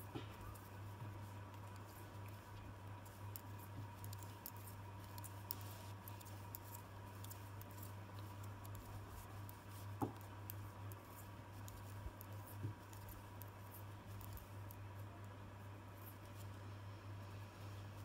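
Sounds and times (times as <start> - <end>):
steady low hum: 0.0 - 18.0
wool rustling: 0.3 - 14.6
knitting needles clicking: 1.4 - 14.8.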